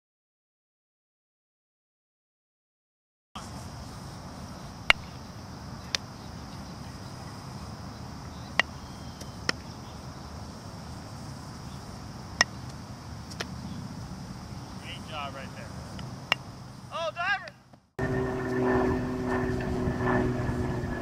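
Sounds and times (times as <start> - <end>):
bat hitting ball: 4.9 - 5.2, 8.5 - 9.7, 16.0 - 16.5.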